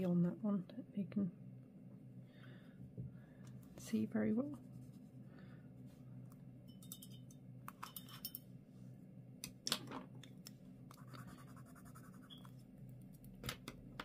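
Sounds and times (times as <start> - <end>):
brush scratching on paper: 11.0 - 12.5.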